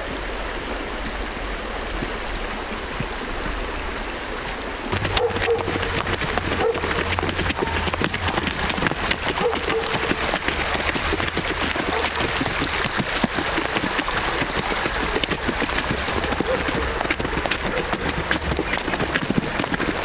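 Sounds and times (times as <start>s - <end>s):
stream babbling over stones: 4.7s - 20.0s.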